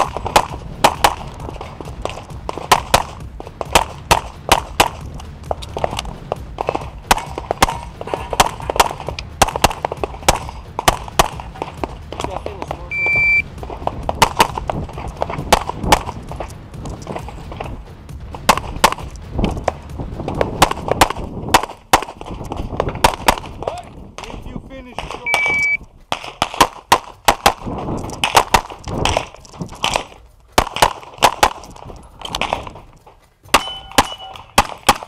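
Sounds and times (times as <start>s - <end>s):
rapid pistol fire: 0.0s - 5.2s, 6.6s - 11.8s, 20.6s - 23.6s, 26.1s - 31.8s, 33.5s - 35.0s
electronic beep: 12.9s - 13.5s, 25.2s - 25.8s, 33.6s - 34.5s.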